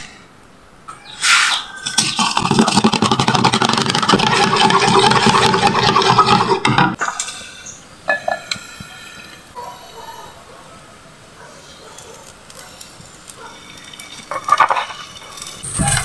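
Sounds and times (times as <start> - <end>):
fork beating eggs in bowl: 1.9 - 6.9.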